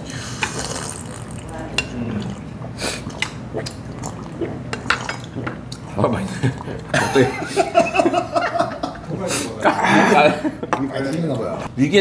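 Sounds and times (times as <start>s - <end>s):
dishes and cutlery clinking: 4.7s - 5.6s.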